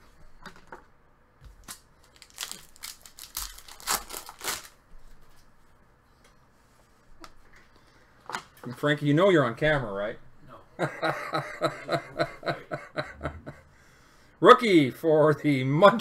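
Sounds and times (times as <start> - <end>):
foil pack tearing and crinkling: 1.6 - 4.8.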